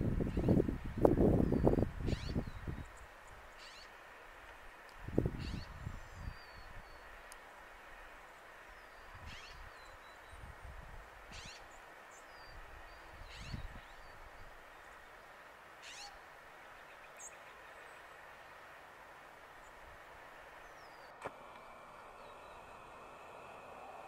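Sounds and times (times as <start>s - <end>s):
faint steady hiss: 0.0s - 24.0s
animal calling: 15.8s - 16.2s.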